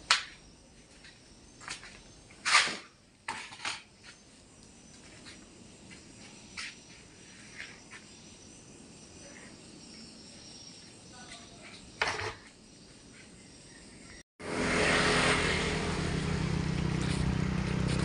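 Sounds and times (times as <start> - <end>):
crickets chirping: 0.0 - 14.2.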